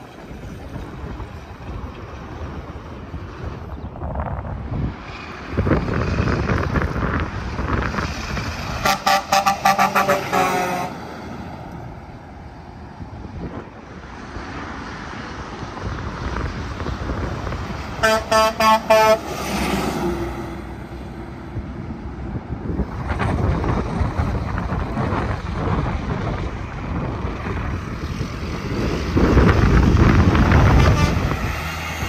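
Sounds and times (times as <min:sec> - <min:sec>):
trucks passing: 0:00.0 - 0:32.0
truck air horn blasts: 0:08.8 - 0:11.0, 0:18.0 - 0:19.4, 0:30.6 - 0:31.4.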